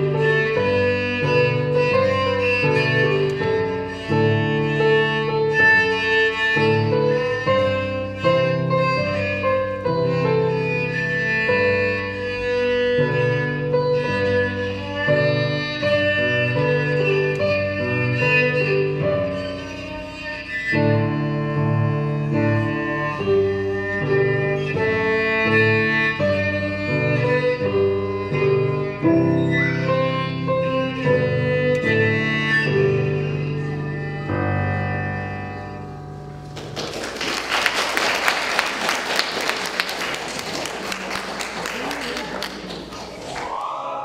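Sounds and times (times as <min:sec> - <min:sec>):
electric cello melody: 0:00.0 - 0:36.8
applause: 0:36.5 - 0:43.6.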